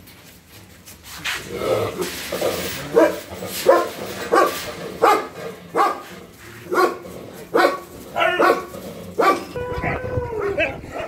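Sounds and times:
dog barking: 0:02.9 - 0:06.1, 0:06.7 - 0:09.6.

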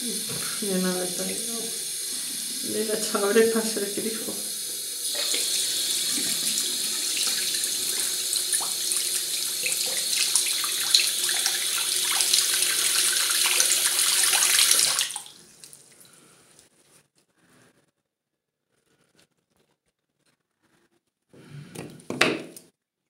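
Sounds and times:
water running from a tap: 0:00.0 - 0:16.2.

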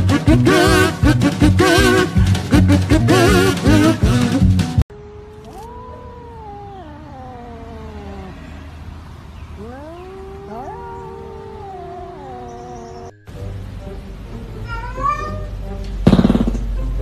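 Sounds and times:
cats yowling: 0:05.0 - 0:13.2.

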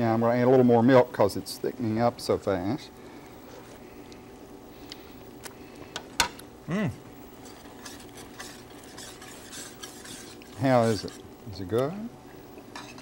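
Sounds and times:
man's short vocal sound: 0:06.7 - 0:07.0
utensils scraping against pans: 0:07.5 - 0:11.2.

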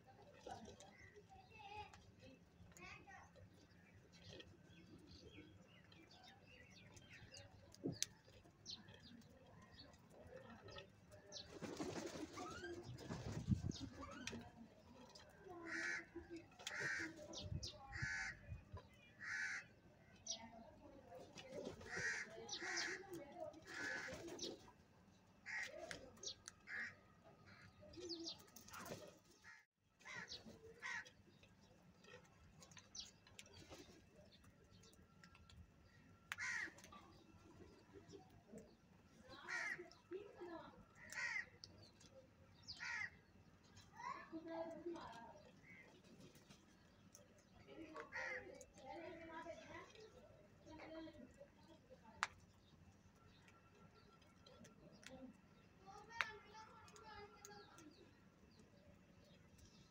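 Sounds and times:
beaks pecking grain: 0:00.0 - 0:59.9
crow wings flapping: 0:11.5 - 0:13.6
crows cawing: 0:16.7 - 0:17.1, 0:17.9 - 0:18.4, 0:19.2 - 0:19.7, 0:21.9 - 0:23.1, 0:25.4 - 0:25.8, 0:26.7 - 0:27.6, 0:29.4 - 0:31.1, 0:36.4 - 0:36.8, 0:39.4 - 0:39.9, 0:41.0 - 0:41.6, 0:42.8 - 0:43.2, 0:48.1 - 0:48.5.

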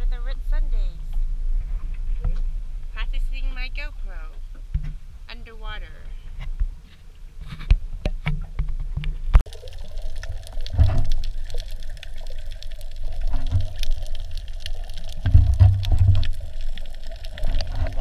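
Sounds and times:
muffled underwater bubbling and sloshing: 0:06.1 - 0:18.0.

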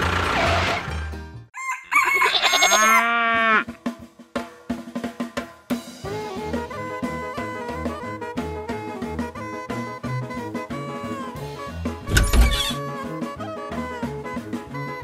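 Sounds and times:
rooster crowing: 0:01.6 - 0:03.6
background music: 0:03.4 - 0:15.0.

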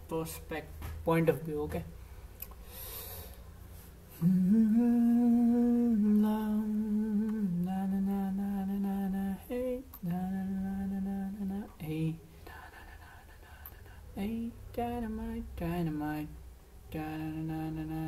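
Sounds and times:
person humming a slow tune: 0:04.1 - 0:12.2, 0:16.9 - 0:18.0.

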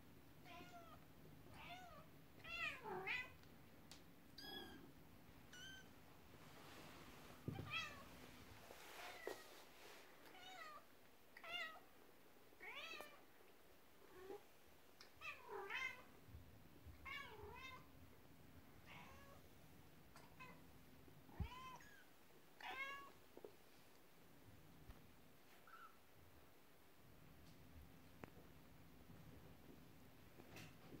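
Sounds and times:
soft bump: 0:07.4 - 0:07.9.

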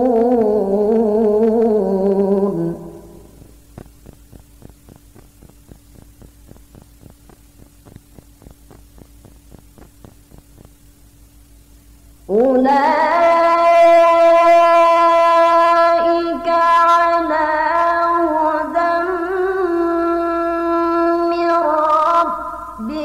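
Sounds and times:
person reciting in sung notes: 0:00.0 - 0:03.4, 0:12.3 - 0:23.0
faint electrical hum: 0:00.0 - 0:23.0
soft ticks: 0:03.4 - 0:10.8.

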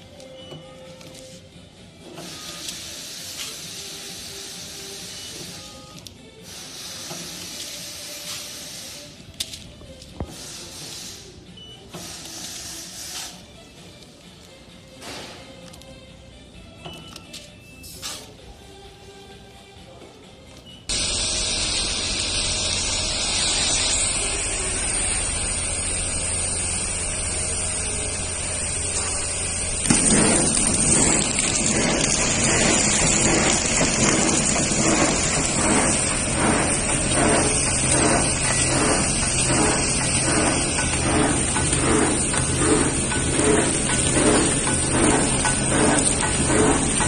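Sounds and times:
machine sealing beat: 0:20.9 - 0:47.0
packing machine running: 0:20.9 - 0:47.0.

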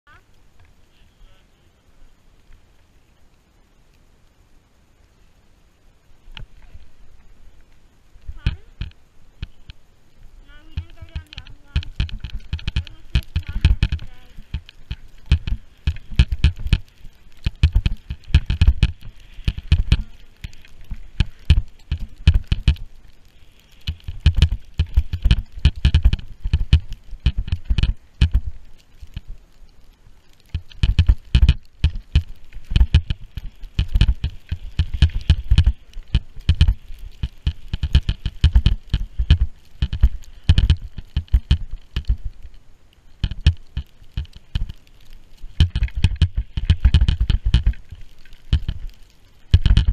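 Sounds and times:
skis turning through powder snow: 0:09.4 - 0:49.9
wind buffeting microphone: 0:10.4 - 0:23.0, 0:23.8 - 0:29.4, 0:30.5 - 0:42.5, 0:45.5 - 0:49.9
sharp taps and thumps: 0:10.6 - 0:22.9, 0:23.8 - 0:29.3, 0:30.4 - 0:42.3, 0:43.2 - 0:44.8, 0:45.5 - 0:49.9.

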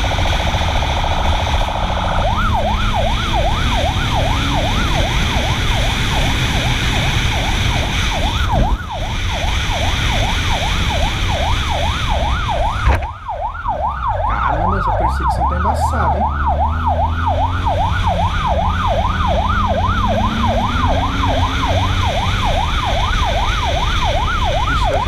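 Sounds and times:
motorcycle engine: 0:00.0 - 0:08.7, 0:15.0 - 0:25.0
motorcycle siren yelping: 0:00.0 - 0:25.0.

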